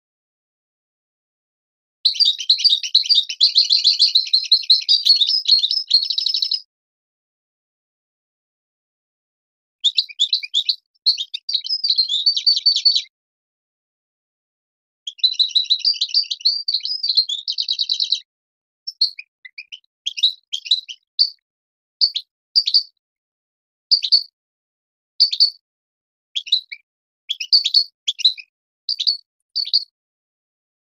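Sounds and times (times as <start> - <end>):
goldfinch twittering song: 2.1 - 6.7, 9.8 - 13.1, 15.1 - 21.4, 22.0 - 23.0, 23.9 - 24.4, 25.2 - 25.6, 26.4 - 30.0.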